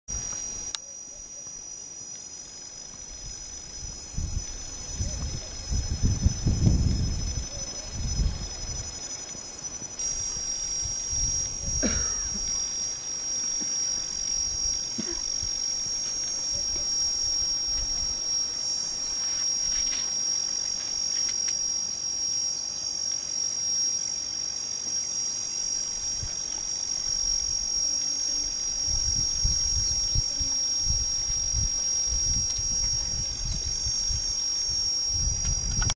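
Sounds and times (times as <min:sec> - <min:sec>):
insects trilling: 0:00.1 - 0:35.9.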